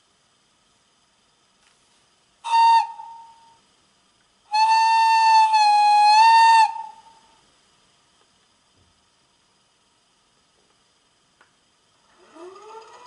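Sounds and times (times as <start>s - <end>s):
model train whistle blasts: 2.4s - 3.6s, 4.5s - 7.3s.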